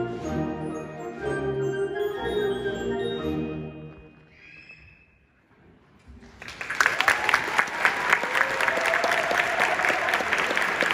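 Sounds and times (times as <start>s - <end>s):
audience applause: 6.3s - 10.9s
people cheering: 6.5s - 10.9s.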